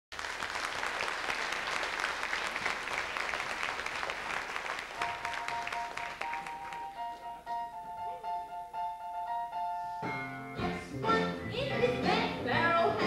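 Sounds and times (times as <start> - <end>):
audience applauding: 0.1 - 7.2.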